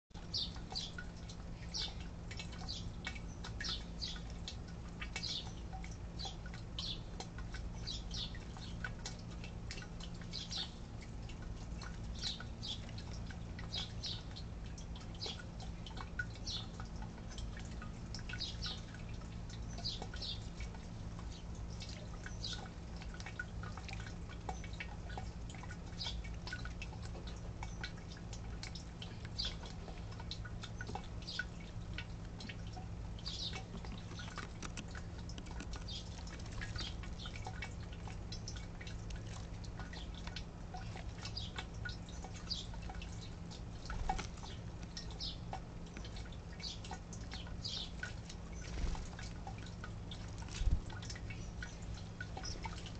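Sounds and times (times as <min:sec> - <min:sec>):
sparrows chirping: 0:00.2 - 0:26.7, 0:28.8 - 0:31.8, 0:32.4 - 0:52.9
steady low hum: 0:00.2 - 0:52.9.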